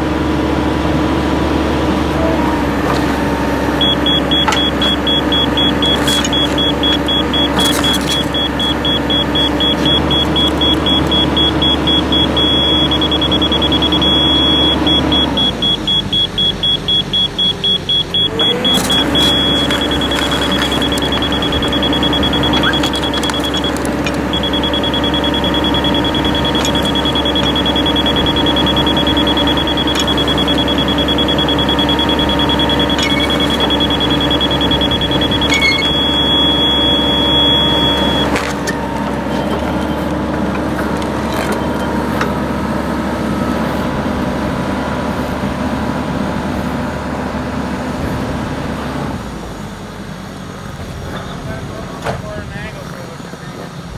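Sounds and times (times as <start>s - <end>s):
hydraulic machine humming: 0.0s - 43.9s
high electronic beep: 3.8s - 39.0s.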